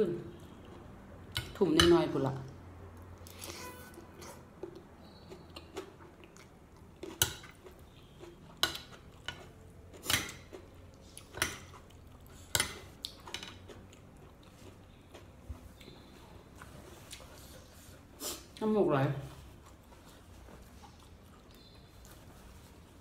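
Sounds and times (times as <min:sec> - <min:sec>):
chewing: 0:02.9 - 0:18.5, 0:19.3 - 0:22.9
cutlery clicking and scraping on plate: 0:08.6 - 0:10.6, 0:12.5 - 0:13.7.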